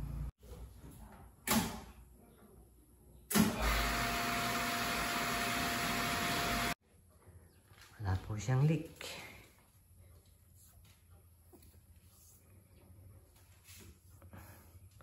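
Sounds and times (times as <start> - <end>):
electric pump hum: 3.6 - 6.8.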